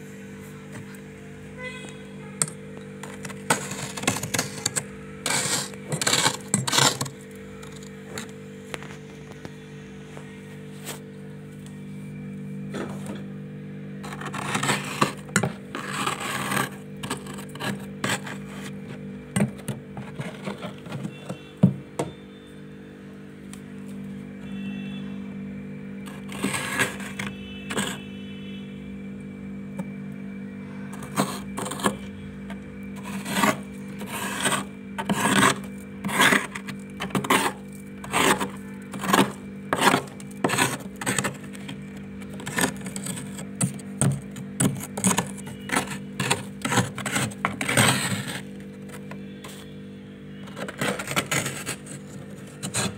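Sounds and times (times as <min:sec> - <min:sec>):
spoon scraping freezer frost: 0:01.7 - 0:09.4, 0:14.0 - 0:21.6, 0:26.0 - 0:28.2, 0:30.9 - 0:49.8, 0:50.4 - 0:52.9.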